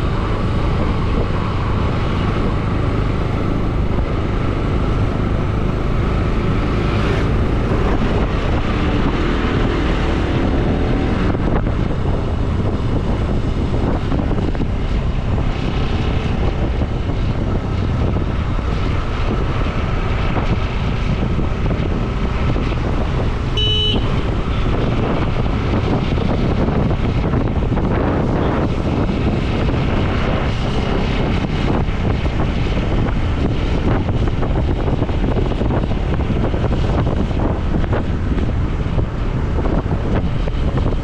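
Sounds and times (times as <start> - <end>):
motorcycle engine running: 0.0 - 41.0
wind buffeting microphone: 0.0 - 41.0
short horn beep: 23.6 - 24.2.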